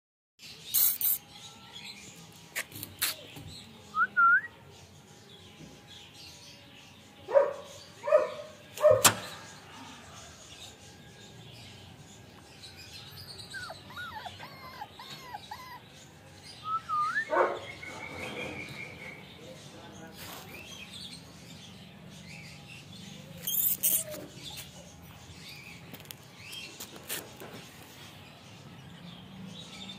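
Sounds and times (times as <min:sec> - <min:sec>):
puppy whimpering: 0:13.4 - 0:16.0.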